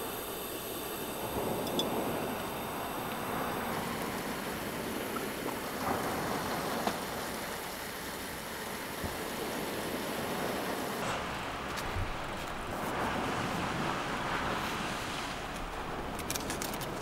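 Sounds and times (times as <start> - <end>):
gas stove burner hissing: 0.0 - 13.1
water boiling: 0.0 - 17.0
light clicks of steamer: 1.4 - 2.5.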